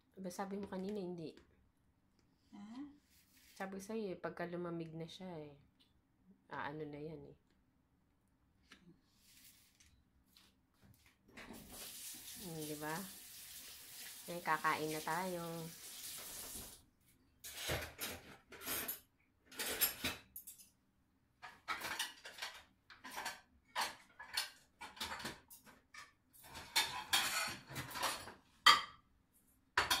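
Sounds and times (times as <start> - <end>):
dishes and utensils clattering: 17.5 - 20.8, 21.4 - 29.0, 29.8 - 30.0.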